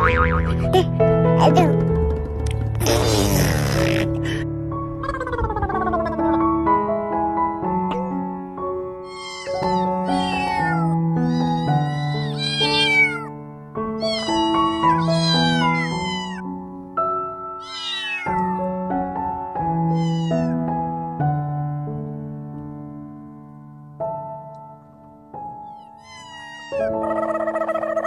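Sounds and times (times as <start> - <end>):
piano music: 0.0 - 28.0
kittens mewing: 9.0 - 13.3, 14.0 - 16.4, 17.6 - 18.6, 19.9 - 20.6, 25.6 - 28.0.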